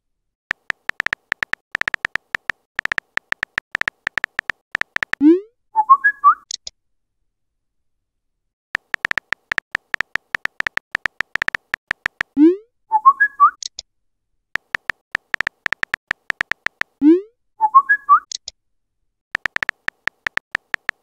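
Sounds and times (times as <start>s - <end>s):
phone keyboard typing clicks: 0.5s - 5.2s, 8.8s - 12.4s, 14.6s - 17.0s, 19.4s - 21.0s.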